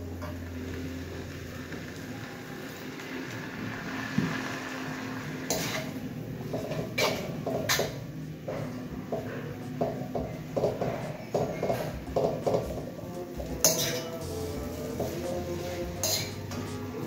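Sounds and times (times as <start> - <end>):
water hissing in hot wok: 0.0 - 6.2
metal spatula scraping wok: 2.6 - 8.1, 13.6 - 16.9.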